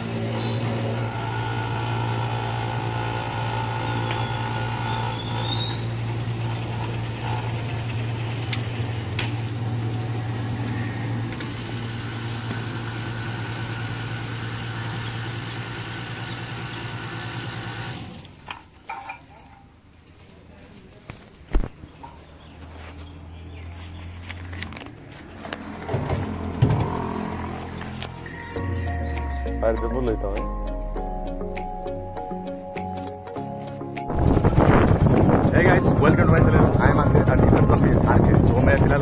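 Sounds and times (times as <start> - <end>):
fuel pump motor humming: 0.0 - 18.4, 24.7 - 29.6, 33.3 - 39.0.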